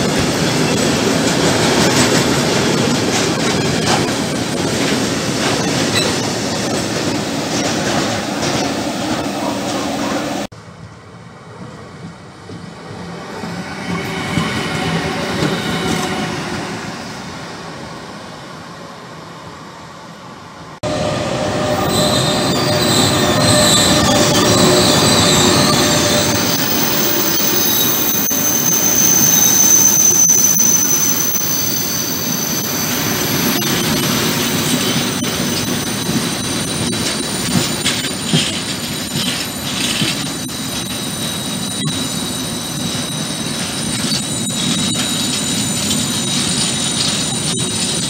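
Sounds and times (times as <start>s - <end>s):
freight train passing: 0.0s - 48.0s
high wheel squeal: 20.8s - 48.0s
wheels clicking over rail joints: 33.6s - 41.0s.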